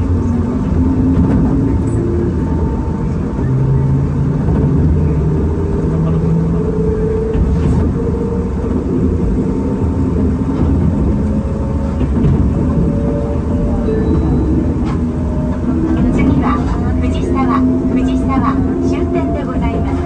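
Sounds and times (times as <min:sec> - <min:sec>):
electric train rumbling: 0:00.0 - 0:20.0.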